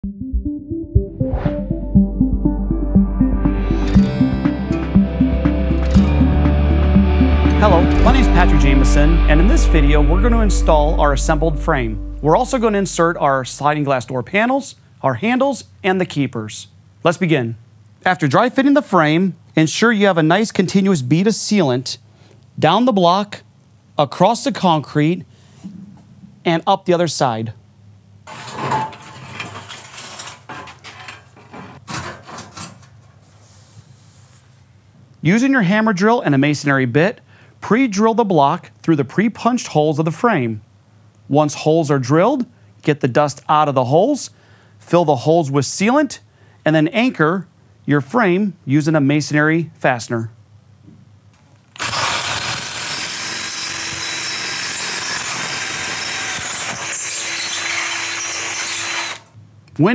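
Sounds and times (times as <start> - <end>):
metal frame scraping: 28.3 - 32.8
cordless drill driving screw: 51.8 - 59.3.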